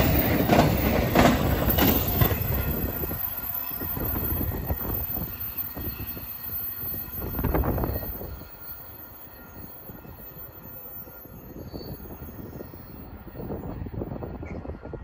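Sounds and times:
freight train rumble: 0.0s - 15.0s
wind on microphone: 1.2s - 8.5s, 11.4s - 15.0s.

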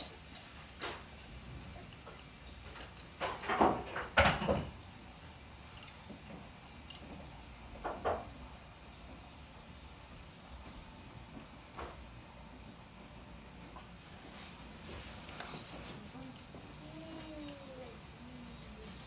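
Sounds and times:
faint steady hiss: 0.0s - 19.0s.

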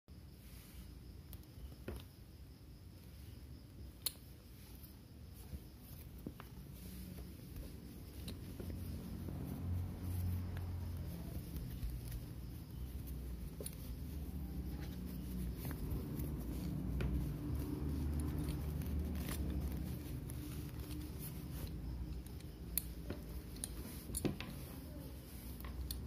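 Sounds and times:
leather belt rubbing: 4.1s - 26.0s.

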